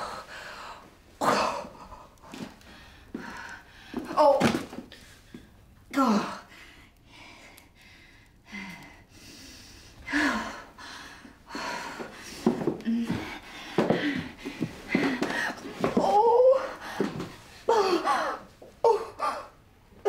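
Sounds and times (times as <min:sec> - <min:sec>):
person gasping and breathing: 0:06.0 - 0:15.8.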